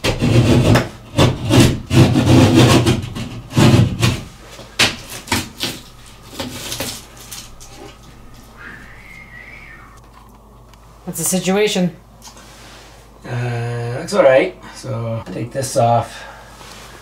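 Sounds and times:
sharp knocks on drywall: 0:00.0 - 0:05.8
utility knife cutting drywall: 0:00.0 - 0:07.4.

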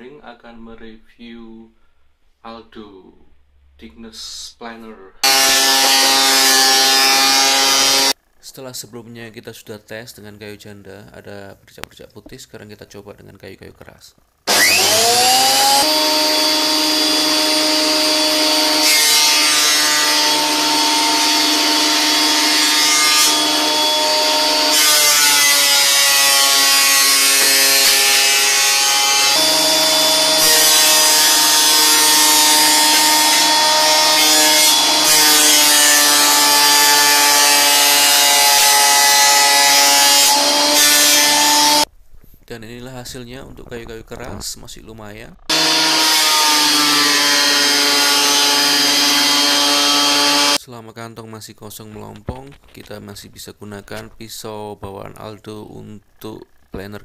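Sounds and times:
planer cutting boards: 0:05.2 - 0:08.2, 0:14.5 - 0:41.9, 0:45.5 - 0:50.6
thickness planer motor whine: 0:05.2 - 0:08.2, 0:14.5 - 0:41.9, 0:45.5 - 0:50.6.

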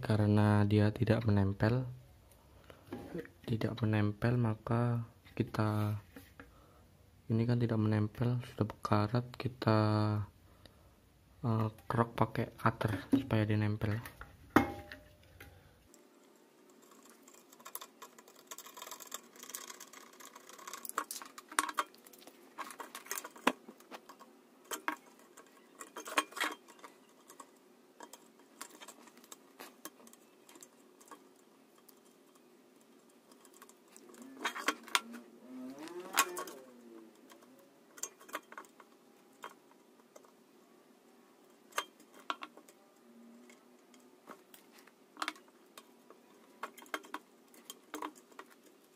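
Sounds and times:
faint steady hum: 0:00.0 - 0:48.9
hand tools clicking and tapping: 0:14.6 - 0:40.4, 0:41.4 - 0:42.8, 0:43.4 - 0:48.9
knife blade scraping wire: 0:16.7 - 0:39.6.

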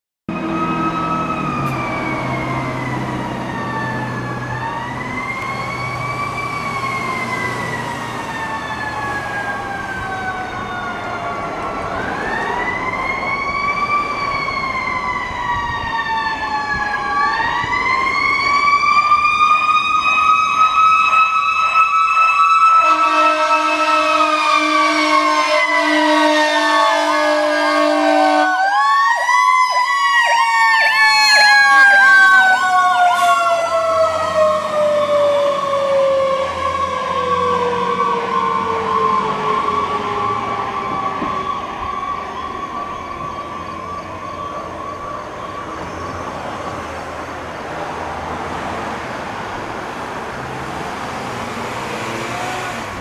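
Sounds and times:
mechanical siren wailing: 0:00.3 - 0:47.1
low air horn blast: 0:22.8 - 0:28.6.

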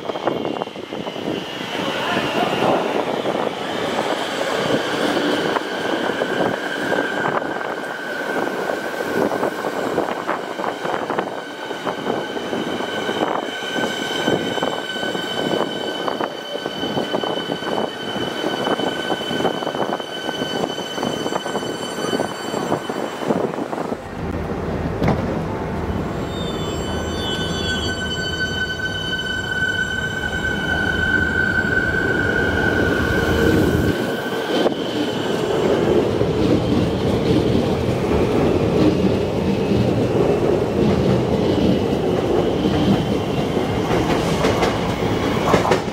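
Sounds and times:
train wheels clattering on track: 0:33.9 - 0:45.9.

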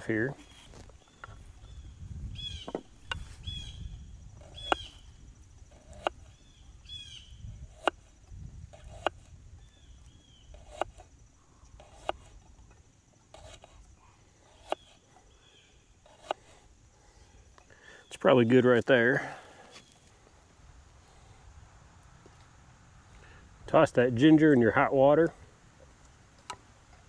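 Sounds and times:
campfire wood popping: 0:00.0 - 0:13.8
small bird chirping: 0:00.2 - 0:08.0, 0:08.8 - 0:12.5, 0:13.4 - 0:18.3.

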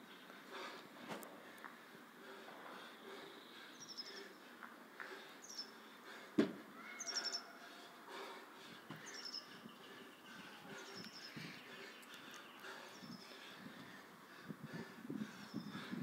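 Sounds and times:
dull thump: 0:06.4 - 0:06.6
small bird chirping: 0:07.0 - 0:07.5.

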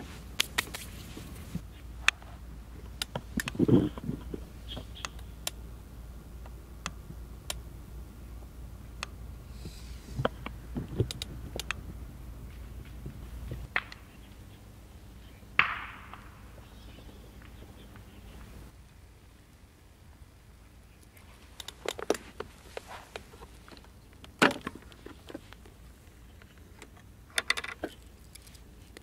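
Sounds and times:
light clicks and taps of gear: 0:09.0 - 0:11.8.

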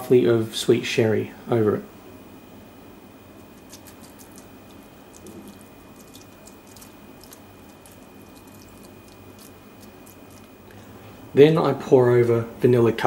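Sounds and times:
soft crackles of soaking cake: 0:03.4 - 0:11.0.

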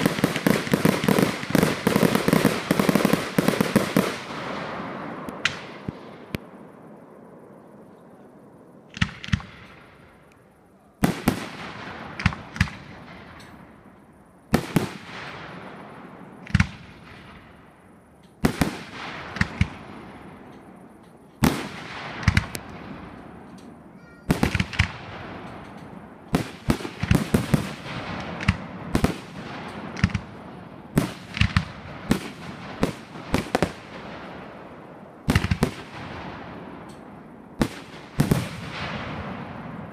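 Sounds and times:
fireworks bursting with sharp bangs: 0:00.0 - 0:08.1, 0:08.8 - 0:39.9.

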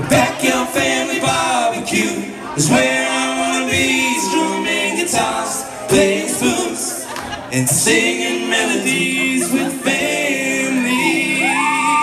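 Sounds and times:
voices joining in singing: 0:00.0 - 0:12.0
man singing into microphone: 0:07.6 - 0:12.0.

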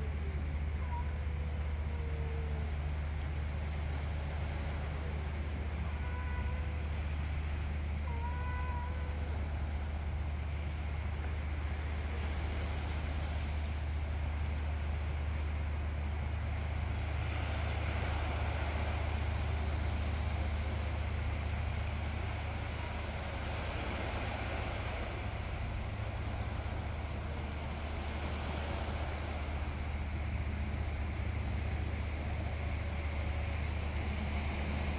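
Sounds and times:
distant city hum: 0:00.0 - 0:34.9.

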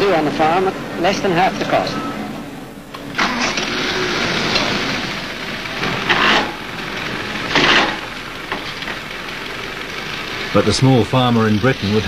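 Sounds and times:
tractor engine running: 0:02.4 - 0:12.0.

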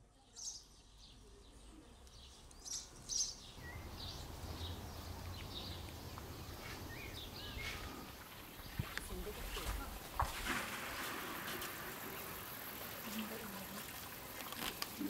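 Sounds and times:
small birds chirping: 0:00.0 - 0:10.2.

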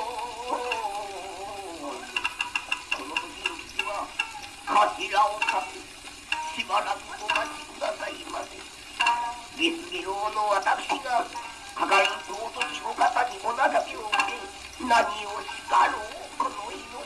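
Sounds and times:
record surface crackle: 0:00.0 - 0:17.0
man chanting narration: 0:02.9 - 0:08.7, 0:09.6 - 0:17.0.

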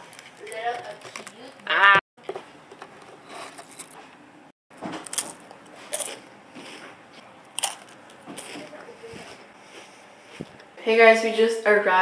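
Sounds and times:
crunchy wafer bites: 0:05.0 - 0:08.7.

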